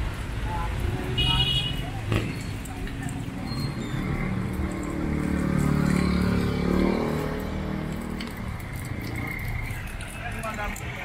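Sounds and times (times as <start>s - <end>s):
vehicle engine passing by: 3.2s - 10.1s.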